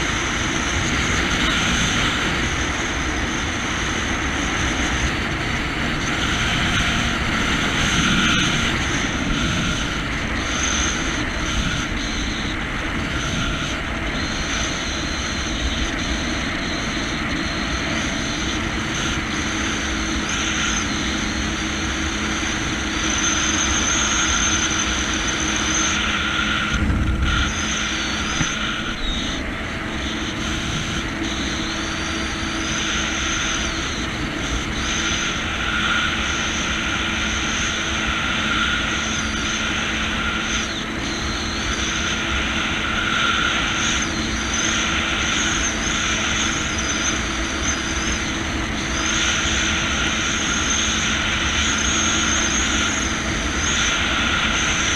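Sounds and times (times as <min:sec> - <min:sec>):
jet ski engine drone: 0:00.0 - 0:54.9
deep rumble: 0:26.5 - 0:32.6.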